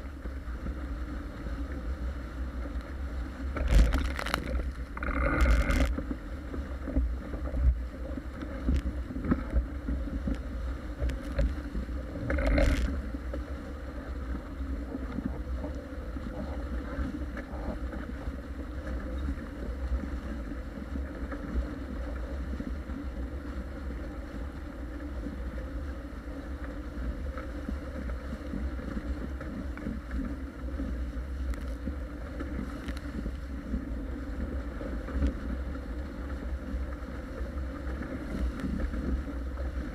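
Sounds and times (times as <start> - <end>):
water rushing along hull: 0.0 - 39.9.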